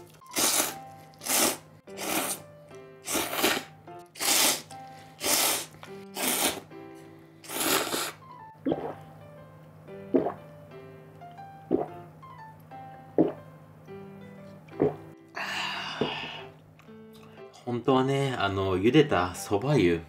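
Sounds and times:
person slurping noodles: 0:00.2 - 0:02.4, 0:03.0 - 0:06.7, 0:07.4 - 0:08.2.

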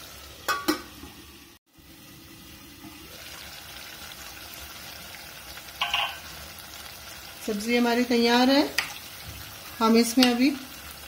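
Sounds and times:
vegetables sizzling in pot: 0:00.0 - 0:11.0
utensil clinking on metal pot: 0:05.8 - 0:06.3.

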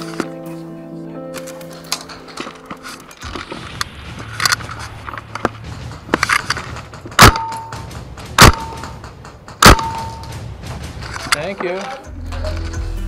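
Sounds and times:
low rumble: 0:03.3 - 0:11.4
sharp hits with ringing tone: 0:07.1 - 0:10.5.

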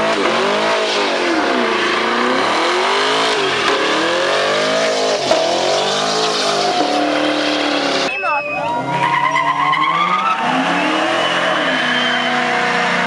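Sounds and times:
car engine revving: 0:00.0 - 0:08.1, 0:08.8 - 0:13.0
spinning tyres hissing: 0:00.5 - 0:08.1.

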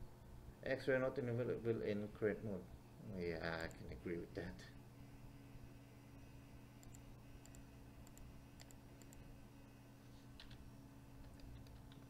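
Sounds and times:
low electrical hum: 0:00.0 - 0:12.0
computer mouse clicks: 0:06.8 - 0:09.3, 0:10.4 - 0:10.6, 0:11.2 - 0:12.0.

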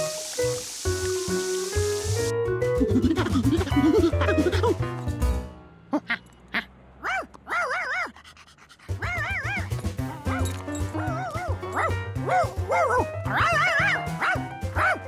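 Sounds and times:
playful background music: 0:01.8 - 0:06.1, 0:08.9 - 0:15.0
cartoon dog yipping and whining: 0:05.9 - 0:15.0.

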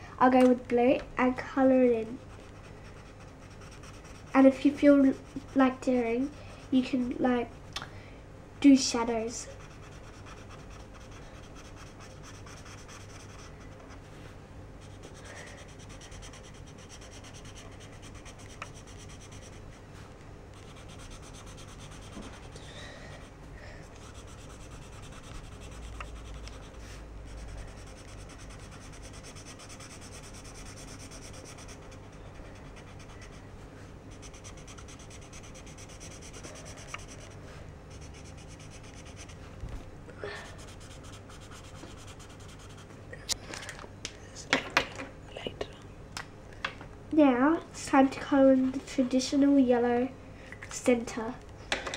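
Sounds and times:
marker rubbing on paper: 0:09.5 - 0:13.9, 0:14.8 - 0:19.6, 0:20.6 - 0:22.5, 0:24.0 - 0:33.4, 0:34.1 - 0:39.4, 0:40.5 - 0:42.8.

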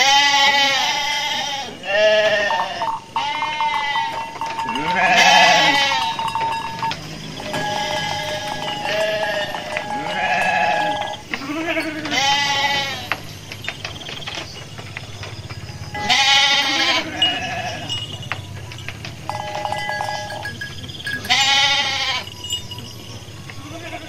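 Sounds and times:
faint bleats of other sheep: 0:00.0 - 0:06.4, 0:07.5 - 0:13.1, 0:16.0 - 0:18.0, 0:21.2 - 0:22.3, 0:23.6 - 0:24.0
sheep bleating: 0:00.0 - 0:06.9, 0:07.5 - 0:13.1, 0:16.0 - 0:18.0, 0:21.2 - 0:22.3, 0:23.6 - 0:24.0.

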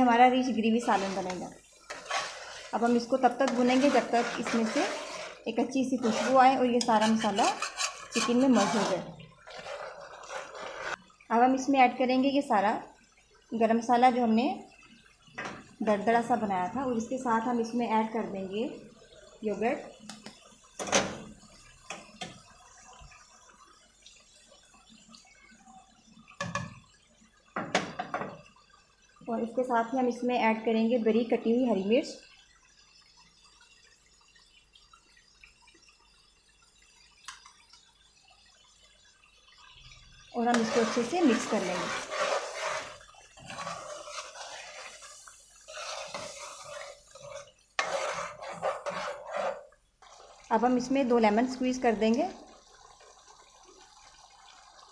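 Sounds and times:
gravy bubbling and crackling: 0:00.0 - 0:54.9
spoon scraping metal pot: 0:00.7 - 0:11.0, 0:40.4 - 0:50.3
spoon stirring thick curry: 0:00.8 - 0:11.0, 0:40.4 - 0:50.5.

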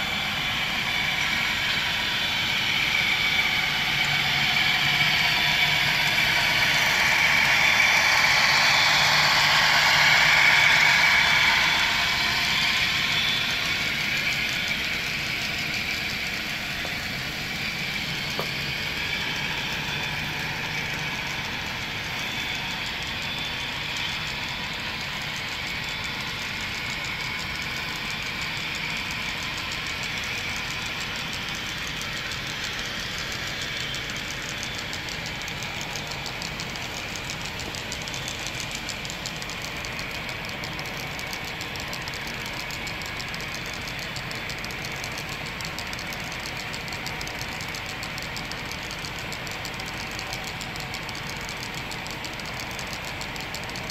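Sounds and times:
model train rolling on track: 0:00.0 - 0:53.9
wheels clicking on track: 0:00.0 - 0:53.9.

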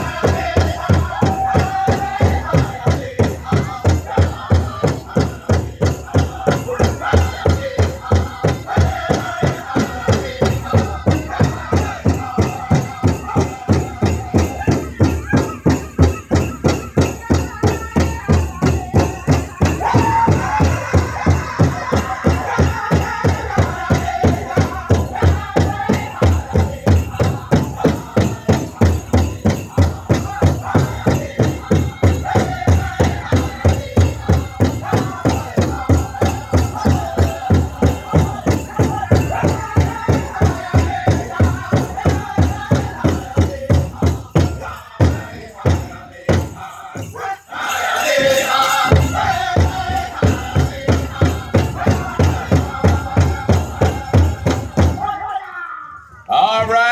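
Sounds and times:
fast steady drumbeat: 0:00.0 - 0:55.2
drum group singing: 0:00.0 - 0:55.4
loud high voices: 0:10.9 - 0:26.2.

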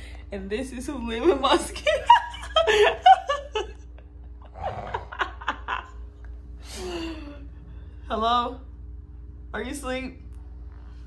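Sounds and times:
people laughing: 0:01.8 - 0:06.0.

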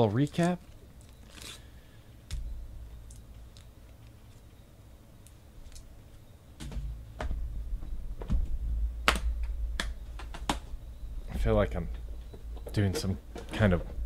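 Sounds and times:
sharp plastic clacks: 0:09.0 - 0:10.7.

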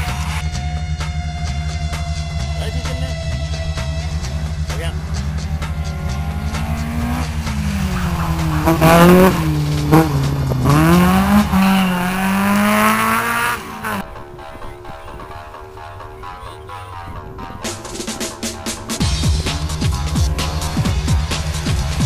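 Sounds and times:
car engine revving hard: 0:04.9 - 0:14.0.

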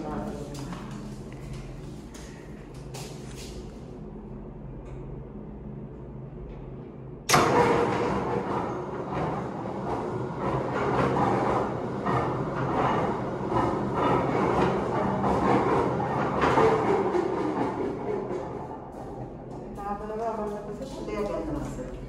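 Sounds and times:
machinery low hum: 0:00.0 - 0:22.0
loud mechanical clatter: 0:06.5 - 0:19.0.

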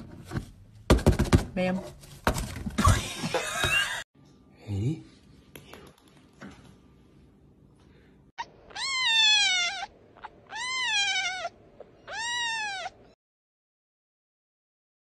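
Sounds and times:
young pet crying: 0:08.4 - 0:13.2.

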